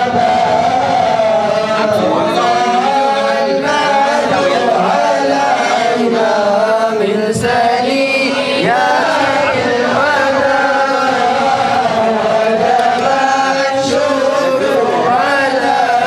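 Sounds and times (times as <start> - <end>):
crowd of men chanting: 0.0 - 16.0.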